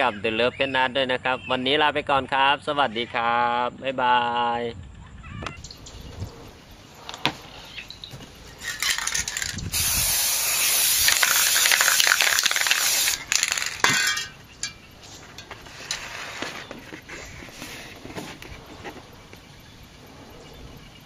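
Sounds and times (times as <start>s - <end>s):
spray paint can hissing: 8.6s - 13.9s.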